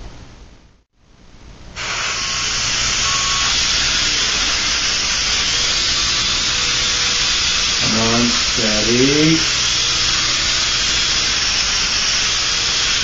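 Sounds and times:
toy helicopter motor buzzing: 0:01.8 - 0:13.0.

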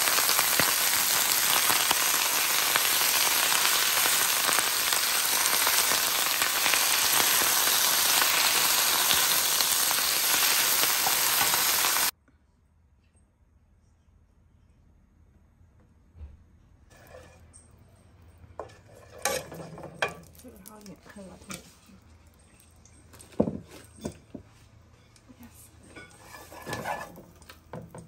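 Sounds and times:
greens sizzling in a skillet: 0:00.0 - 0:12.1.

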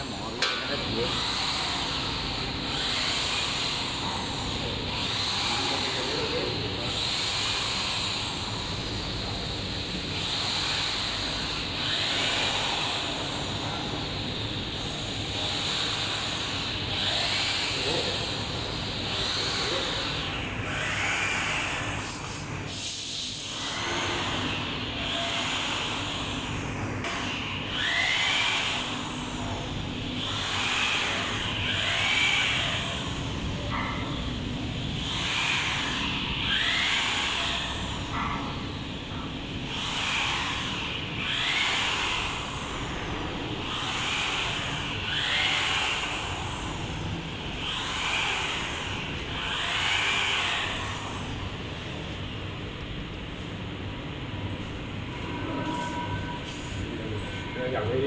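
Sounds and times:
factory machinery running: 0:00.0 - 0:58.0
pulsing hissing sound: 0:22.0 - 0:24.5.

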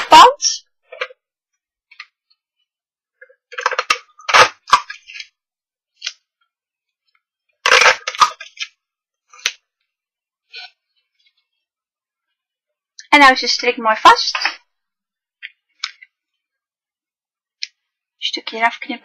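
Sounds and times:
crackling and rustling of tape: 0:01.8 - 0:11.7.

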